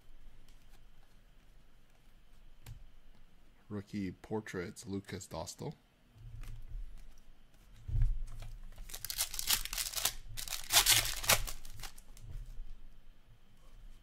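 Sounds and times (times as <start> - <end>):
wrapper tearing: 8.8 - 12.0.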